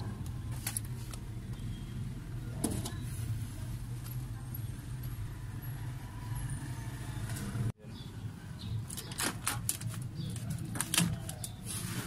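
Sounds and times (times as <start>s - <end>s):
plastic sheet crinkling and rustling: 8.9s - 12.0s.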